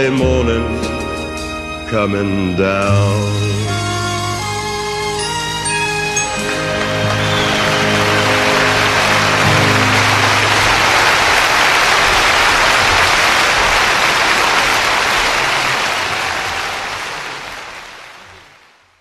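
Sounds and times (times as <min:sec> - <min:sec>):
audience applause: 0:05.6 - 0:19.0.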